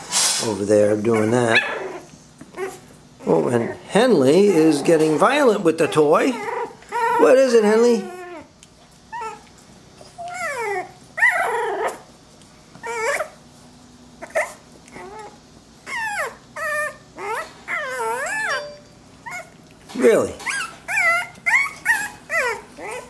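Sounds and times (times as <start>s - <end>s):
puppy whining and yipping: 1.1s - 8.5s, 9.1s - 12.1s, 12.8s - 13.4s, 14.2s - 23.0s.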